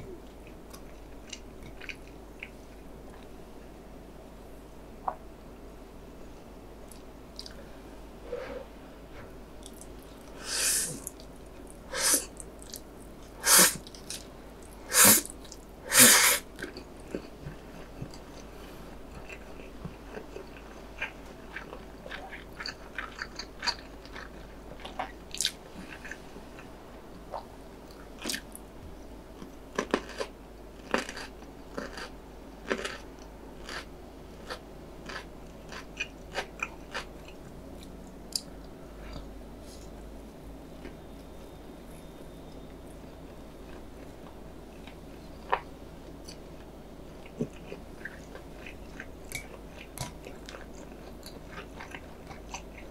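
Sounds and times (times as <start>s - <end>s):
close-miked wet chewing: 9.6s - 15.7s, 16.6s - 26.7s, 42.5s - 52.9s
loud noodle slurps: 10.4s - 11.0s, 11.9s - 12.2s, 13.4s - 13.8s, 14.9s - 15.3s, 15.9s - 16.4s.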